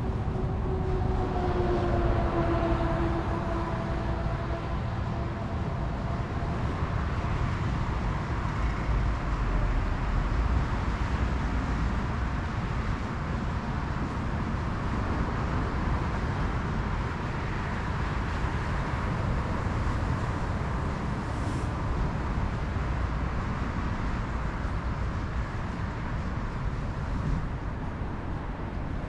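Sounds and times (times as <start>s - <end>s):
low rumble: 0.0s - 10.6s.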